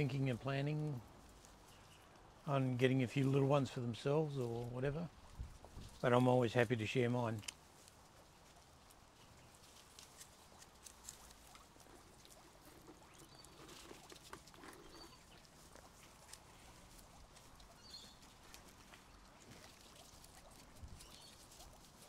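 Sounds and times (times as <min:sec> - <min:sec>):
guinea pigs munching: 0:00.0 - 0:22.0
guinea pig peeps: 0:05.7 - 0:22.0.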